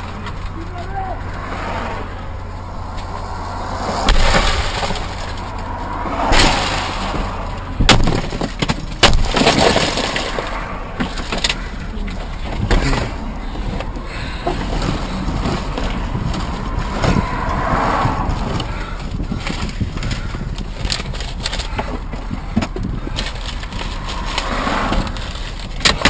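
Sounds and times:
low hum: 0.0s - 25.8s
sharp bangs and crashes: 2.3s - 11.6s.

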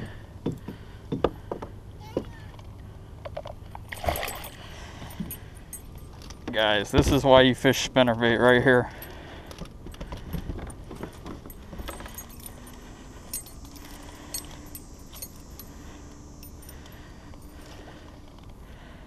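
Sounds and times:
metal lure clinking and jingling: 3.9s - 6.5s, 11.0s - 17.8s.

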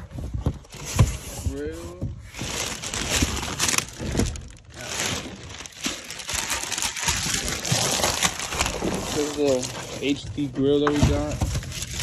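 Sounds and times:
plastic wrapping crinkling: 0.7s - 12.0s.

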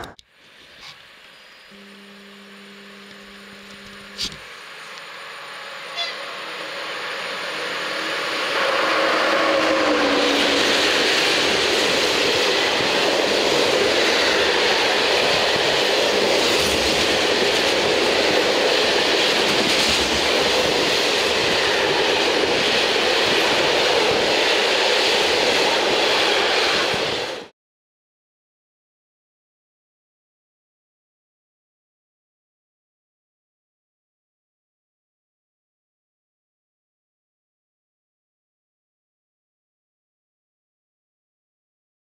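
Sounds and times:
train rumbling on rails: 3.7s - 27.5s.

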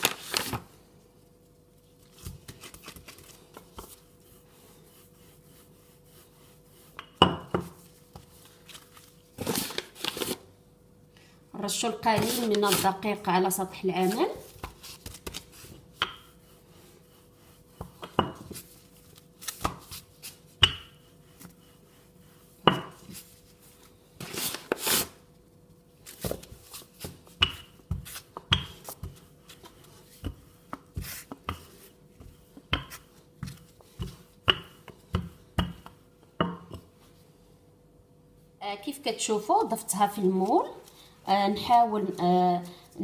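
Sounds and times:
rolling pin knocking on countertop: 7.0s - 7.8s, 17.8s - 18.6s, 20.6s - 21.0s, 22.6s - 23.1s, 27.4s - 29.2s, 32.7s - 36.9s
rolling pin scraping: 14.0s - 23.6s.

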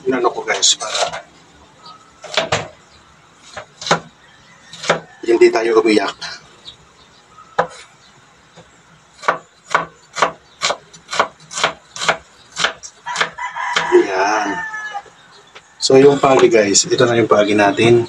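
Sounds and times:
knife chopping on wooden board: 3.5s - 4.1s, 4.7s - 5.1s, 7.6s - 7.8s, 9.2s - 13.9s.

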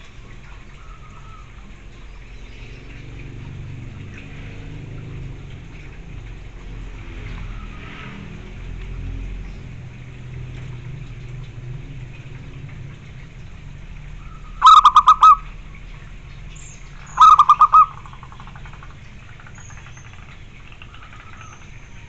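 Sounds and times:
dove cooing: 14.4s - 15.6s, 17.0s - 18.8s.

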